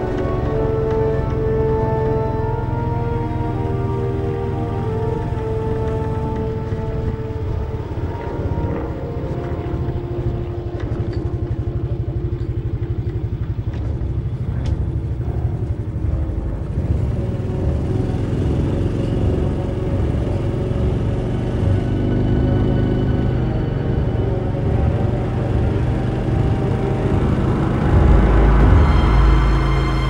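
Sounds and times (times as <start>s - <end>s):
motorcycle engine rumbling: 0.0s - 30.0s
music: 0.0s - 30.0s.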